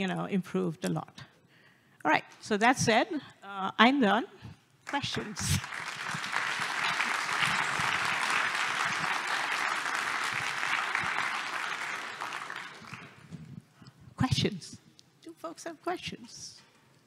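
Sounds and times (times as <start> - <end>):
audience applauding: 4.9 - 13.3.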